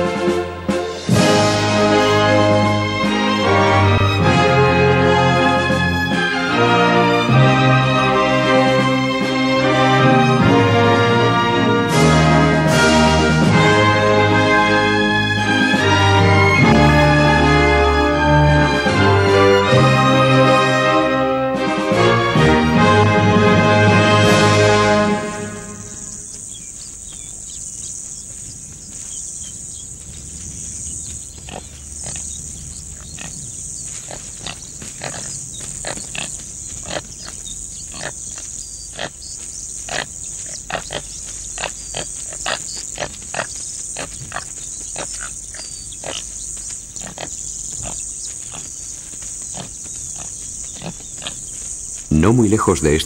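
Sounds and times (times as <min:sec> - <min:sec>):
high insect drone: 0:23.8 - 0:52.2
antelopes snorting and grunting: 0:30.3 - 0:52.1.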